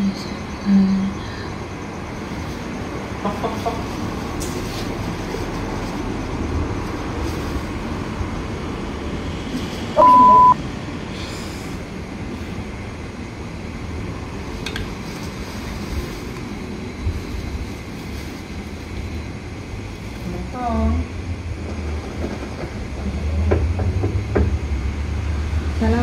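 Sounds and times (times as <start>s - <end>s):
road traffic noise: 0.0s - 26.0s
censor bleep: 10.0s - 10.6s.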